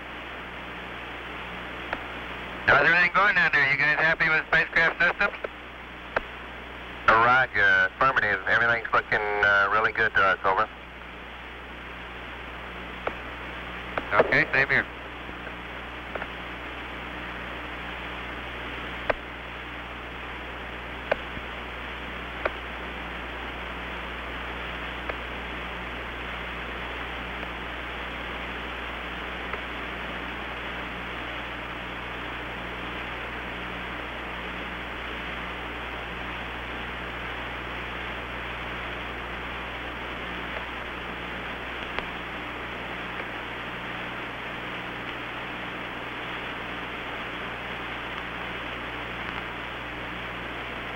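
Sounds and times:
faint pulsing hum: 0.0s - 50.9s
radio hiss and hum: 0.0s - 50.9s
sharp radio clicks: 1.9s - 2.1s, 2.7s - 6.4s, 7.0s - 10.7s, 13.0s - 16.5s, 18.9s - 19.4s, 21.0s - 21.5s, 22.2s - 22.8s, 25.0s - 25.3s, 27.3s - 27.6s, 29.4s - 29.8s, 40.2s - 43.7s, 44.7s - 50.4s.

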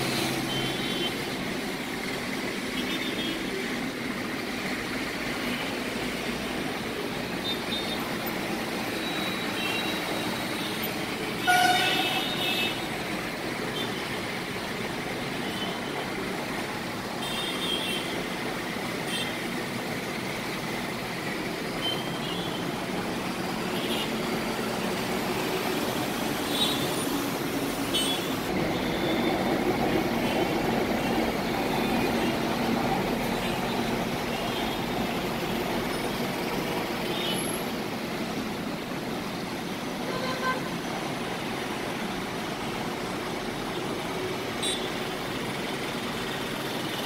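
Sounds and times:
city road traffic: 0.0s - 47.0s
car horn toots: 11.4s - 12.4s.

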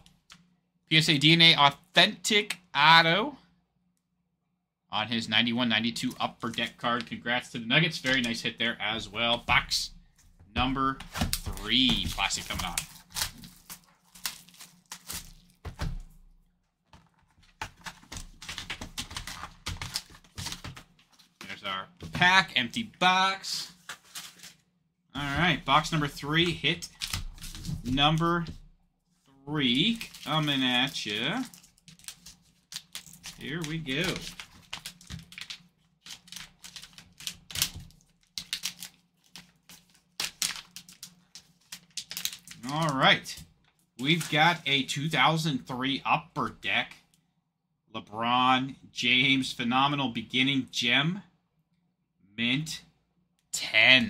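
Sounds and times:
plastic shrink wrap crinkling: 11.2s - 21.4s, 29.6s - 44.7s.

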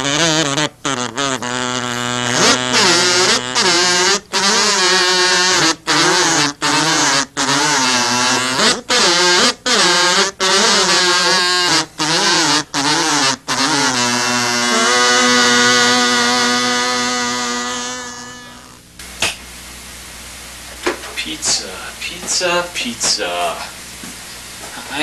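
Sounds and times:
handheld mouth instruments playing: 0.0s - 18.9s.

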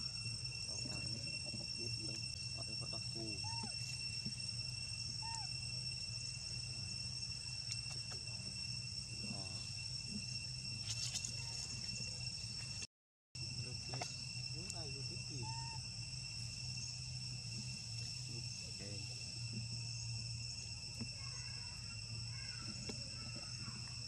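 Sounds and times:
insect chorus drone: 0.0s - 24.0s
faint rising and falling calls: 0.7s - 8.5s, 14.6s - 19.0s.

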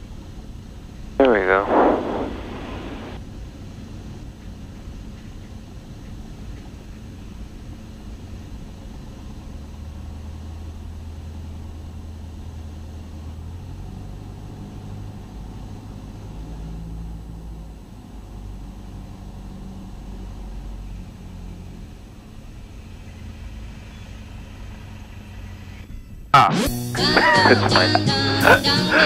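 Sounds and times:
aircraft engine droning: 0.0s - 29.0s
airflow hiss: 1.2s - 6.0s.

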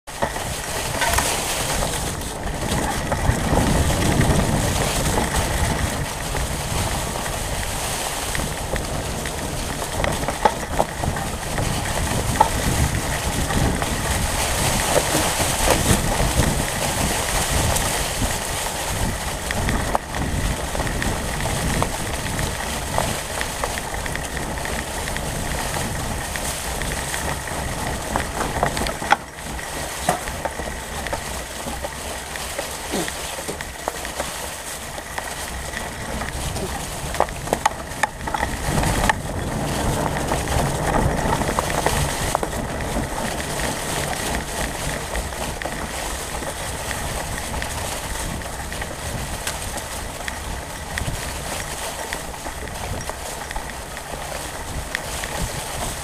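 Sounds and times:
bike tyres rolling over leaves: 0.0s - 56.0s
bike knocks and rattles: 0.1s - 56.0s.

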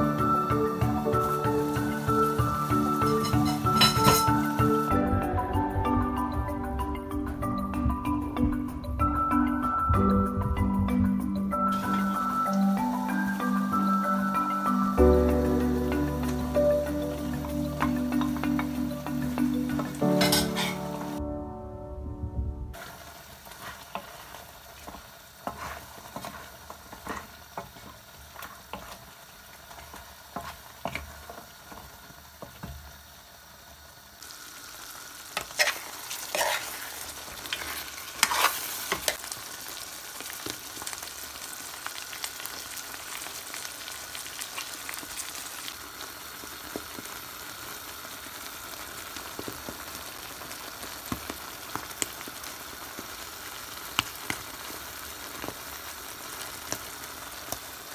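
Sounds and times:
stew sizzling in a pan: 0.0s - 21.2s, 22.7s - 57.9s
spoon scraping and knocking pan: 2.9s - 4.7s, 19.7s - 21.1s, 23.5s - 29.1s, 29.8s - 32.8s, 35.4s - 39.2s.

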